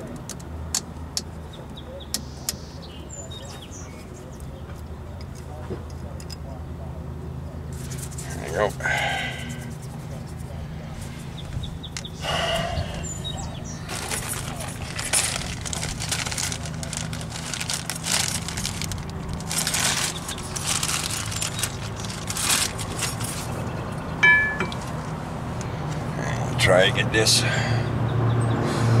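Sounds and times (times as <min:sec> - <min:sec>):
short metallic ring: 0:24.2 - 0:24.8
metal brake parts scraping and rattling: 0:24.2 - 0:25.2.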